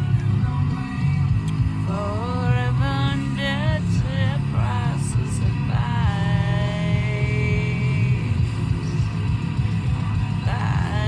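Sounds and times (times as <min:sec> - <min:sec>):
music with held sung note: 0:00.0 - 0:11.0
road and engine rumble in car: 0:00.0 - 0:11.0.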